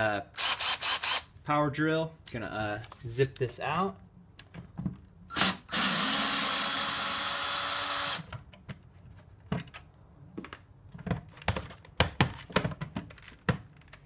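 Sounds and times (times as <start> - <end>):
cordless drill whining: 0.4 - 1.3, 5.3 - 8.3
knocks and clicks of handling: 8.3 - 14.0.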